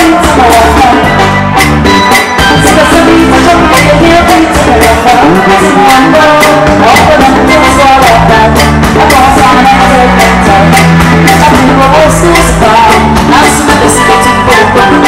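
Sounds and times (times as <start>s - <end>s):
woman singing into a microphone: 0.0s - 1.2s, 2.5s - 15.0s
drums: 0.0s - 15.0s
live band: 0.0s - 15.0s
steady bass line: 0.0s - 15.0s.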